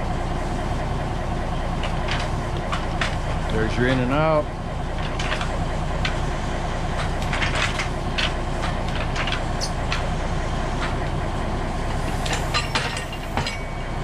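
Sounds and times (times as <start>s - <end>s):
diesel engine running: 0.0s - 14.0s
metallic clicks and clanks: 6.9s - 10.1s, 12.1s - 13.7s.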